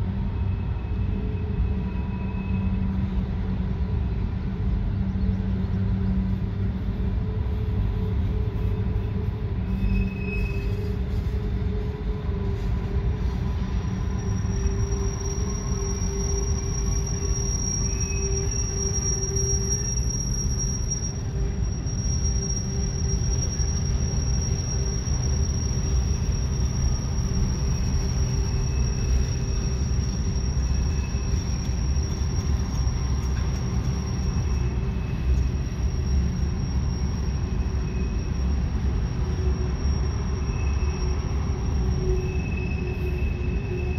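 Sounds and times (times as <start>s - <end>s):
train cars rumbling: 0.0s - 43.9s
high wheel-flange squeal: 0.2s - 3.4s, 7.2s - 43.9s.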